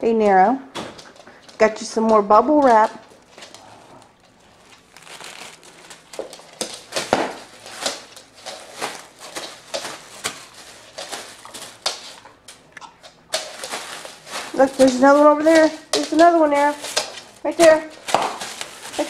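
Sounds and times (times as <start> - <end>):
plastic crinkling and crackling: 2.6 - 19.0.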